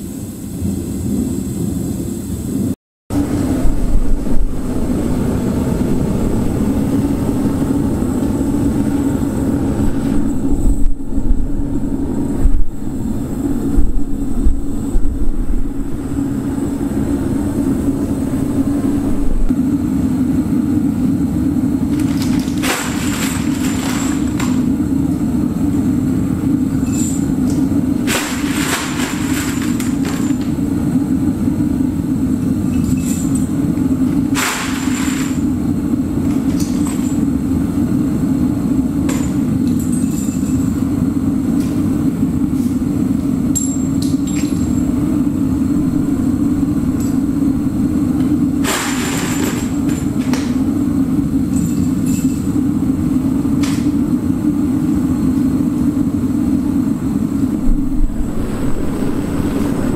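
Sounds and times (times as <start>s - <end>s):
propane burner running: 0.0s - 59.9s
bursts of higher noise: 3.1s - 19.5s, 45.0s - 49.1s.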